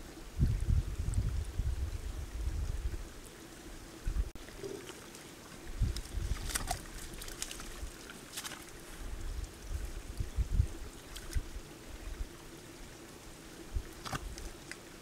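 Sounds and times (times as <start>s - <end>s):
water dripping: 4.0s - 12.3s, 13.6s - 15.0s
mud and water sloshing: 4.4s - 10.0s, 10.9s - 11.6s, 13.8s - 15.0s.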